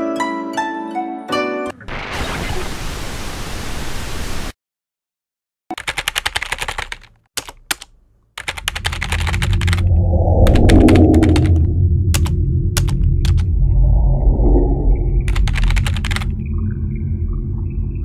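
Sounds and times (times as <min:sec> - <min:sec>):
keyboard key clicks: 0:05.7 - 0:09.8, 0:12.2 - 0:13.4, 0:15.3 - 0:16.3
deep rumbling drone: 0:08.9 - 0:18.0.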